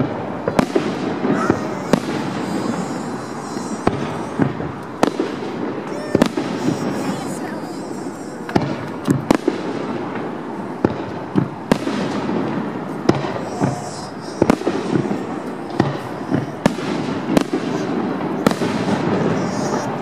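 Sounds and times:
steady background noise: 0.0 - 20.0
firework shells bursting: 0.5 - 10.3.

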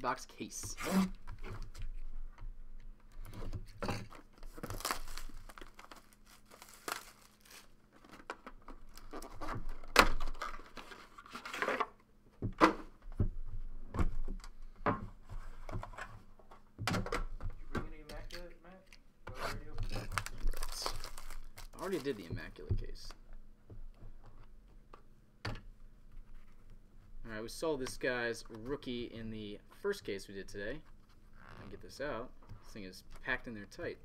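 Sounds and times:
plastic wrap crinkling and tearing: 4.1 - 11.8, 19.7 - 22.3.

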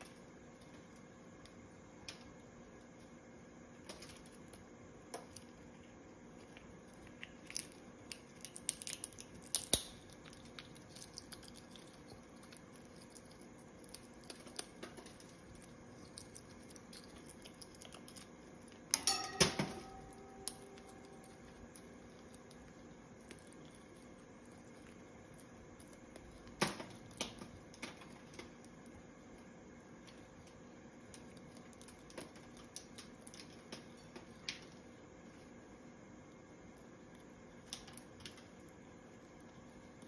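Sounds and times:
parrot cracking a nut: 6.4 - 29.0, 30.0 - 34.8, 37.1 - 38.6.

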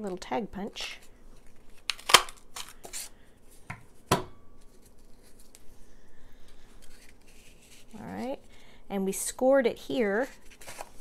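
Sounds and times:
paper rustling: 10.1 - 11.0.

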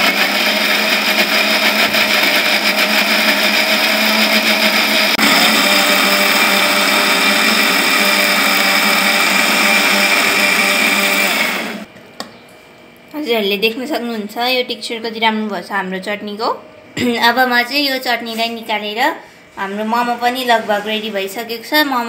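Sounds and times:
mixer grinder running: 0.0 - 11.9.

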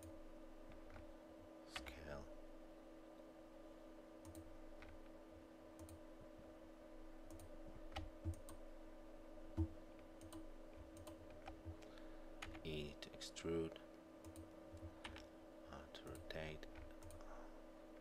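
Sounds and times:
low electrical hum: 0.0 - 18.0
keyboard and mouse clicks: 4.2 - 5.1, 5.8 - 6.0, 7.3 - 8.6, 9.6 - 12.7, 14.2 - 15.3, 16.1 - 17.3.

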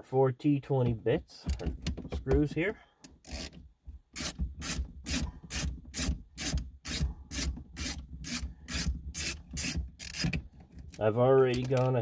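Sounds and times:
screwdriver rasping clicks: 4.2 - 10.4.

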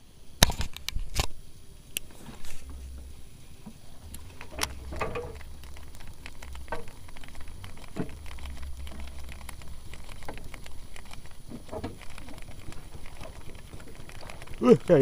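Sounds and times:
low steady rumble: 1.4 - 15.0
small clicks and taps: 4.1 - 15.0.

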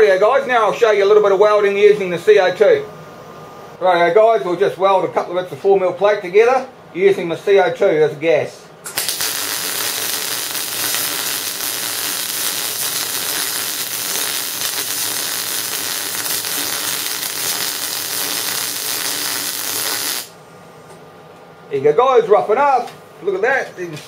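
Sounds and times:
welding arc crackling: 8.9 - 20.4.

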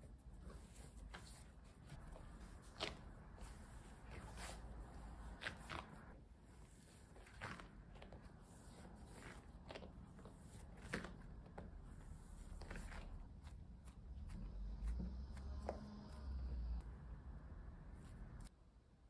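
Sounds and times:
dough squishing and slapping: 0.0 - 16.4.

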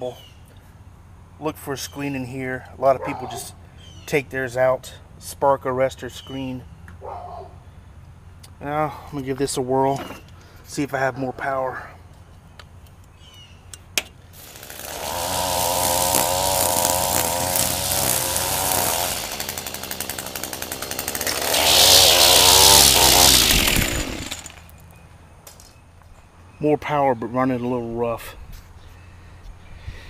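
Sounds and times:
string trimmer engine revving: 14.4 - 24.8.

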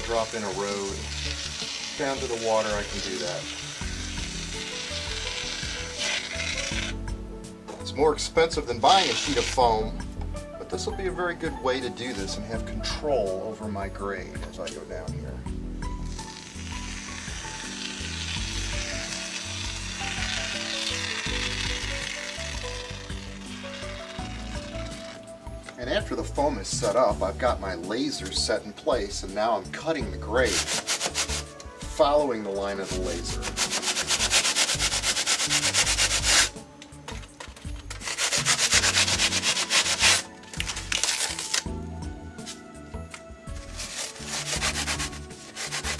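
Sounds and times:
foam hissing from dispensing gun: 0.0 - 7.0, 8.8 - 9.7, 16.0 - 25.3, 30.4 - 31.5, 32.6 - 36.5, 37.5 - 41.6, 43.7 - 45.9
quiet background music: 0.0 - 45.9.

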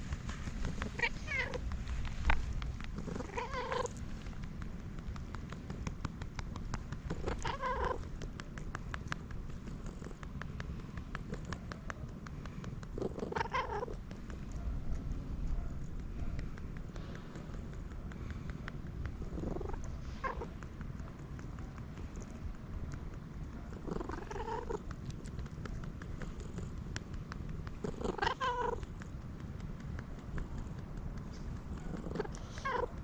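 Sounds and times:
quick light patting taps: 0.0 - 13.1
steady low rumble: 0.0 - 33.0
cat cooing: 0.6 - 2.4, 3.0 - 4.0, 7.1 - 8.1, 13.1 - 14.0, 19.2 - 20.5, 23.8 - 24.9, 27.8 - 28.8, 31.8 - 33.0.

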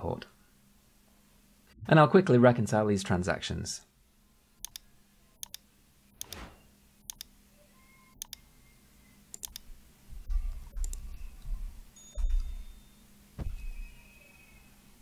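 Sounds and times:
computer mouse clicks: 4.6 - 4.8, 5.4 - 5.6, 6.2 - 6.5, 7.1 - 7.3, 8.2 - 8.4, 9.3 - 9.7, 10.5 - 11.0
keyboard typing: 9.3 - 11.6.

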